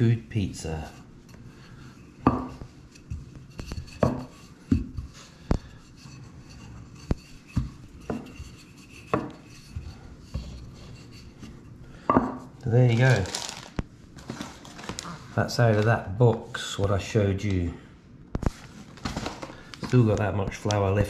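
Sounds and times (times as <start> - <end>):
rolling pin rolling dough: 0.0 - 13.2
rolling pin knocking on stone: 2.2 - 5.7, 7.0 - 8.5, 9.1 - 10.6.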